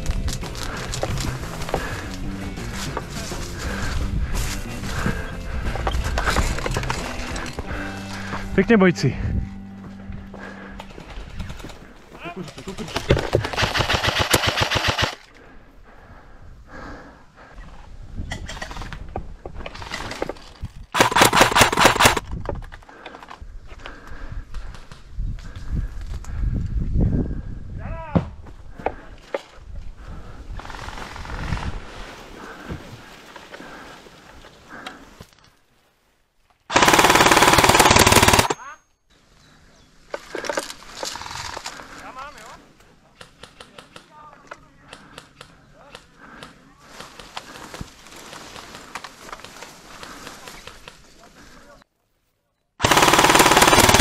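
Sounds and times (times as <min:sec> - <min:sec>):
airsoft rifle firing bursts: 0:13.4 - 0:15.2, 0:21.0 - 0:22.2, 0:36.7 - 0:38.6, 0:52.8 - 0:54.0.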